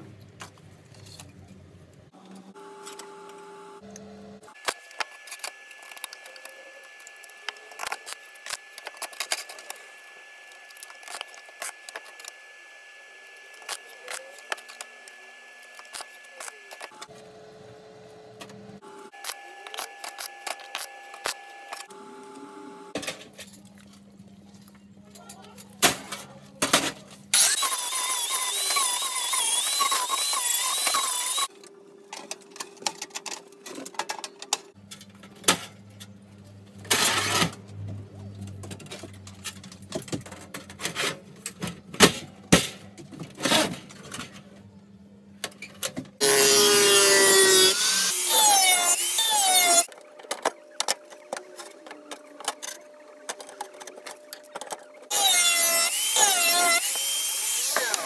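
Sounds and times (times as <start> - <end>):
angle grinder grinding steel: 27.4 - 31.5, 46.2 - 49.9, 55.1 - 58.0.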